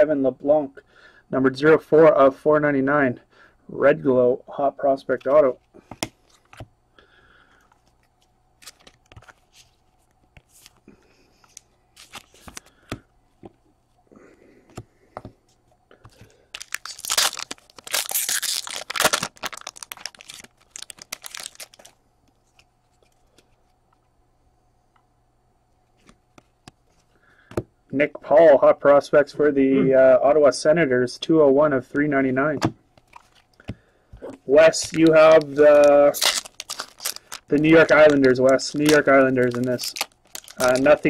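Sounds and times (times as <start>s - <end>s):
cards rustling and clicking: 7.6s - 10.8s, 11.4s - 13.6s, 16.0s - 23.7s, 33.0s - 41.0s
foil pack tearing and crinkling: 16.6s - 22.0s, 34.7s - 41.0s.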